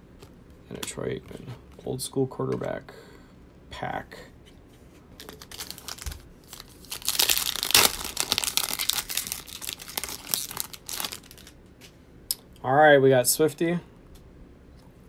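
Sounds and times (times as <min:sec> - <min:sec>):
foil wrapper crinkling and tearing: 0:05.2 - 0:11.6.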